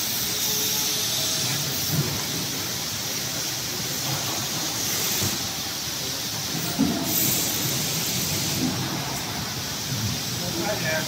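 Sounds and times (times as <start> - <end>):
machinery hiss and hum: 0.0 - 11.0.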